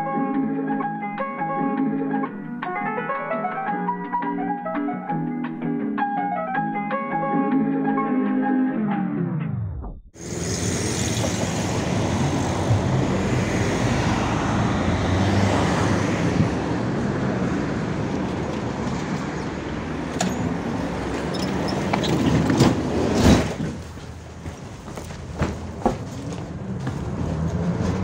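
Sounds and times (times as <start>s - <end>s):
tram rumbling on rails: 10.2s - 28.0s.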